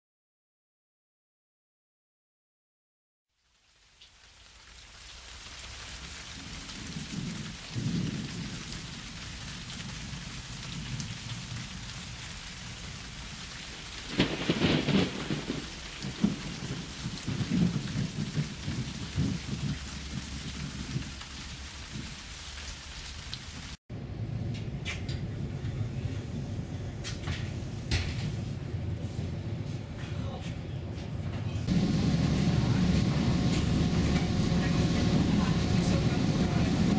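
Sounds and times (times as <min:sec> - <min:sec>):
rain: 0:03.3 - 0:30.4, 0:31.6 - 0:36.9
thunder rolling: 0:06.1 - 0:22.3, 0:23.5 - 0:36.9
train running inside carriage: 0:24.5 - 0:36.9.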